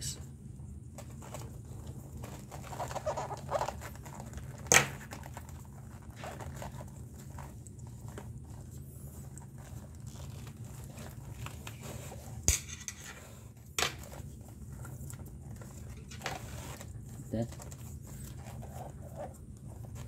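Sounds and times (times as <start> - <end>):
leather lace rustling: 1.2 - 12.2.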